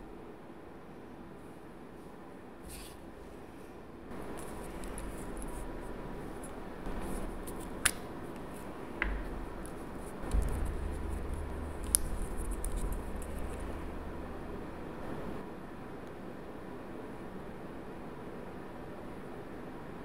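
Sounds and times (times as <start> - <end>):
low rubbing and bumping: 9.0 - 15.4.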